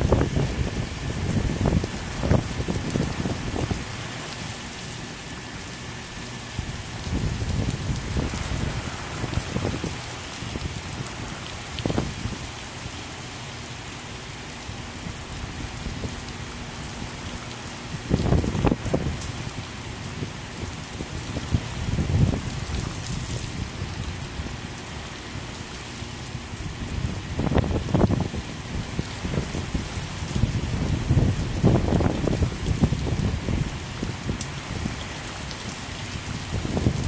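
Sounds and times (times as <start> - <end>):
heavy rain pouring: 0.0 - 37.0.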